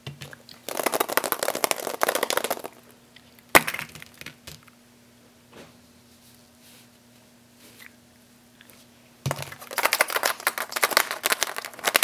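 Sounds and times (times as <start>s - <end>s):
plastic egg rattling: 0.6s - 2.8s, 9.3s - 12.0s.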